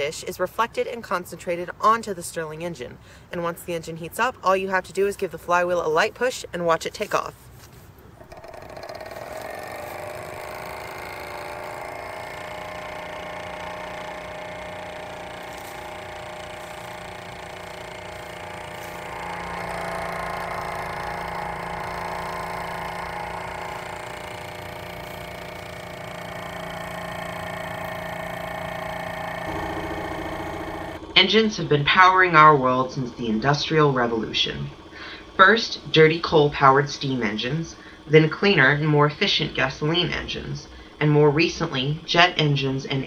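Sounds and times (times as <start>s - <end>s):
stirling engine whirring: 8.1s - 43.0s.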